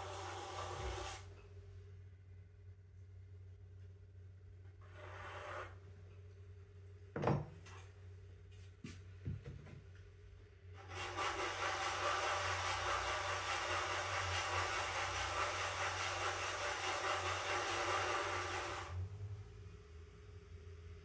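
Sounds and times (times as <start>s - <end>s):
low steady hum: 0.0s - 5.1s, 5.8s - 10.8s, 18.9s - 21.0s
tool scraping clay: 4.8s - 5.8s, 10.8s - 18.8s.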